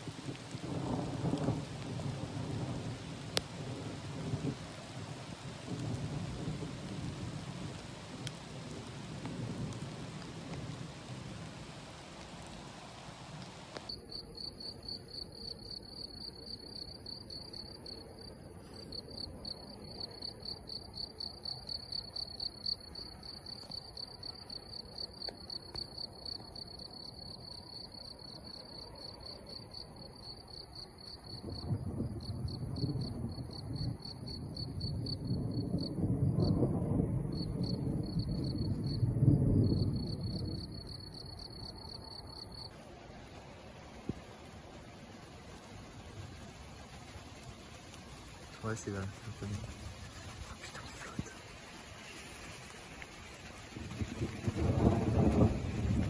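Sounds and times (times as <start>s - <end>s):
low thunder rumbling: 0.0s - 13.9s, 28.4s - 56.0s
crickets trilling: 0.0s - 56.0s
rain falling: 0.0s - 56.0s.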